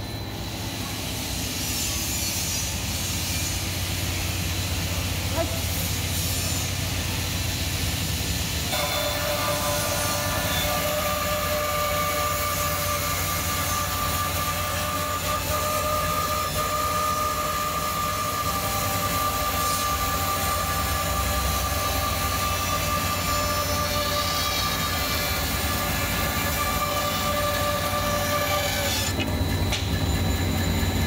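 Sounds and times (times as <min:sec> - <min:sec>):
band saw cutting wood: 0:08.7 - 0:29.9.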